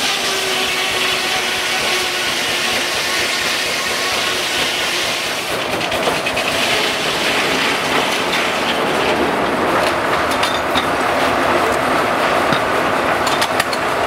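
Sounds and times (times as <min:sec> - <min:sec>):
sawmill machinery running: 0:00.0 - 0:14.0
sharp clicks and knocks: 0:05.5 - 0:06.7, 0:07.9 - 0:11.8, 0:12.4 - 0:13.9.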